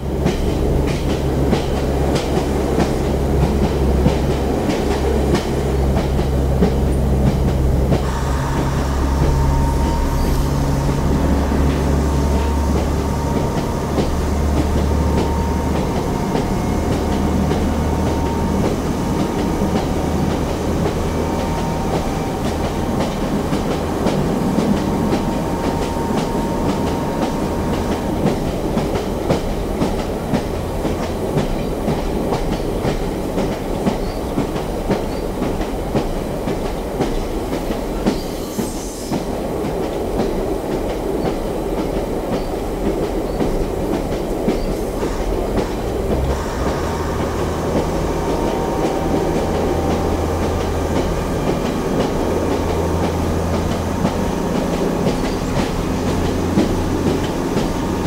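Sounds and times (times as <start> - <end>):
diesel engine pulling: 0.0 - 31.6, 45.1 - 58.0
train running noise: 0.0 - 58.0
wheels clicking over rail joints: 39.1 - 58.0.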